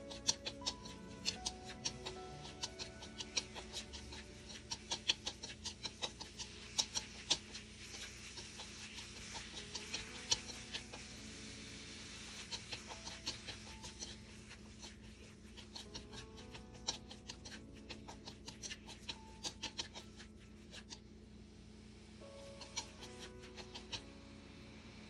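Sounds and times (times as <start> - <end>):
chopsticks clicking against pan: 0.0 - 10.9, 12.5 - 14.2, 15.6 - 20.9
light sizzle: 0.0 - 25.0.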